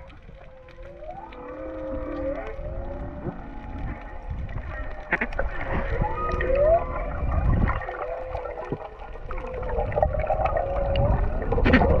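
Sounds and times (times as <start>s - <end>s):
low rumble of water movement: 0.0s - 12.0s
whale song underwater: 0.0s - 12.0s.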